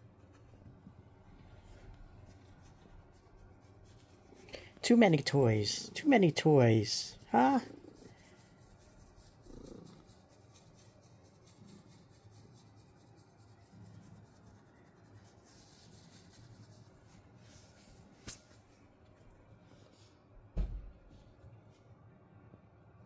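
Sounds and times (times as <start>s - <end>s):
cat purring: 5.2s - 16.9s.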